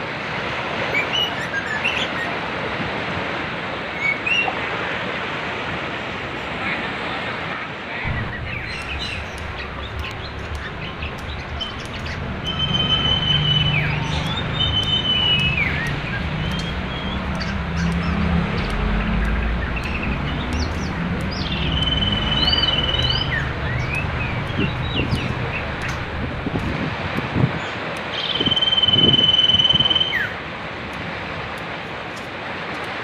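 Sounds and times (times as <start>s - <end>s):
fast-flowing river rushing: 0.0s - 33.0s
songbirds whistling and chirping: 0.9s - 2.4s, 4.0s - 4.6s, 8.1s - 26.6s, 27.6s - 30.4s.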